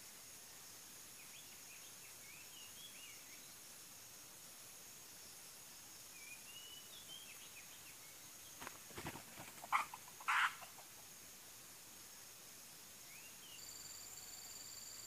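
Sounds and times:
high-pitched insect tones: 13.1s - 15.0s.

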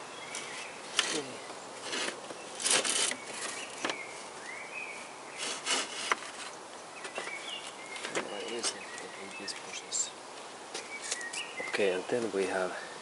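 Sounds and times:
radiator scraping against panels: 0.3s - 10.0s.

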